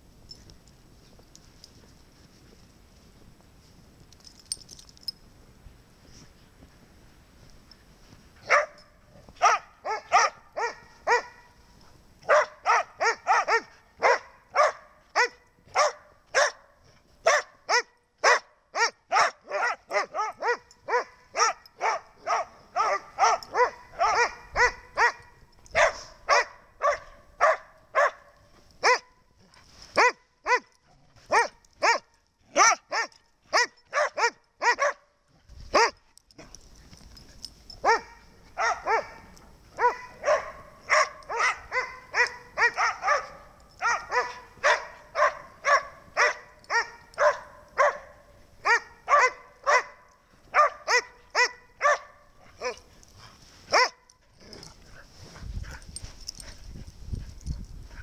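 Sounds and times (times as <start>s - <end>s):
dog barking: 8.4s - 8.8s, 9.4s - 11.6s, 12.2s - 29.2s, 30.0s - 30.7s, 31.3s - 35.1s, 35.7s - 36.0s, 37.8s - 52.9s, 53.7s - 54.1s.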